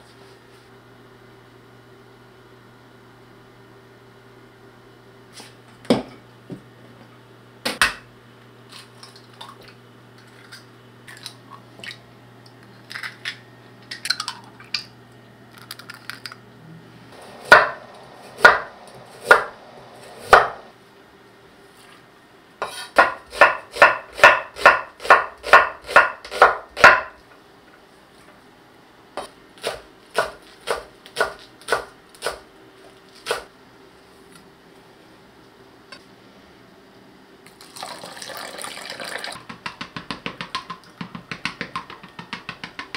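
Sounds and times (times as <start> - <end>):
knife chopping on wooden board: 17.5 - 17.8, 18.4 - 19.6, 20.2 - 20.6, 22.6 - 27.2, 29.2 - 32.4.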